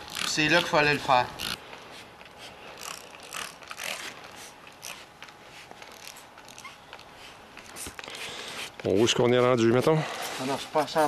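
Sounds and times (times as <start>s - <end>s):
scrubbing and wiping fabric: 4.3s - 11.0s.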